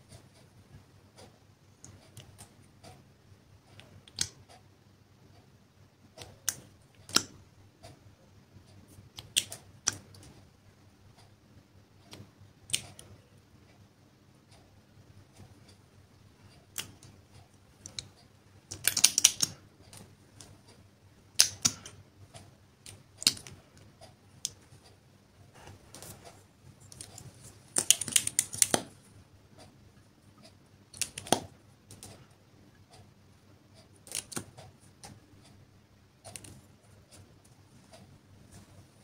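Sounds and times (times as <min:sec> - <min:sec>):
plastic packaging clicking: 0:26.9 - 0:29.0, 0:34.0 - 0:34.5.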